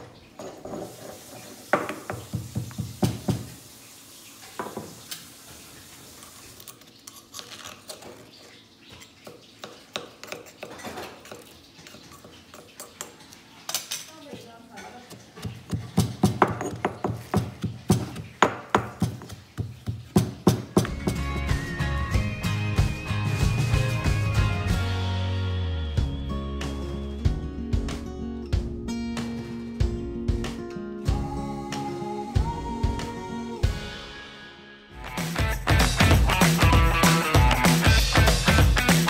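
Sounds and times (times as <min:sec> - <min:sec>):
pestle pounding in stone mortar: 0:15.1 - 0:21.3.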